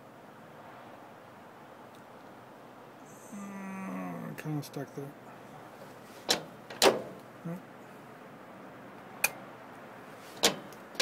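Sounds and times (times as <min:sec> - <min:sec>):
metallic lock clunks: 0:06.2 - 0:07.2, 0:10.4 - 0:10.8.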